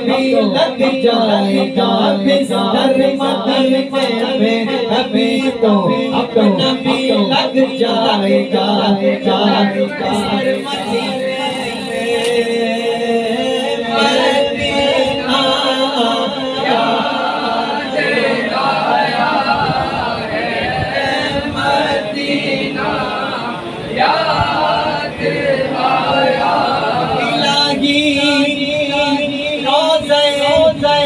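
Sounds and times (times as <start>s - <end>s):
group singing a devotional hymn: 0.0s - 31.0s.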